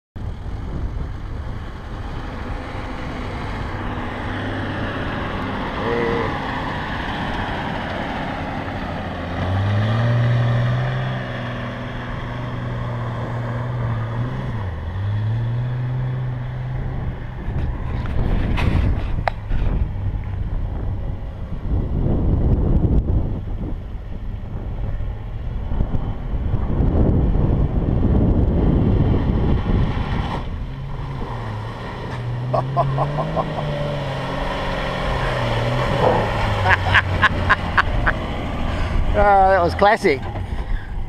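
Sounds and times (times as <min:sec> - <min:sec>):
truck engine revving: 0:01.8 - 0:19.0, 0:25.7 - 0:40.6.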